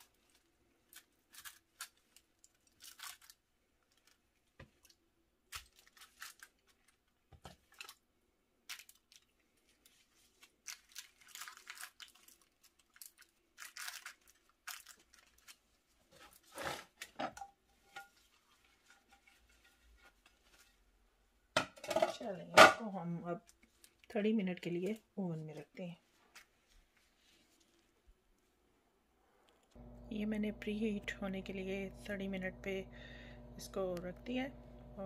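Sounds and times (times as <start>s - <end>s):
plastic gloves crinkling: 0.0s - 17.2s, 17.8s - 21.2s, 23.4s - 28.1s.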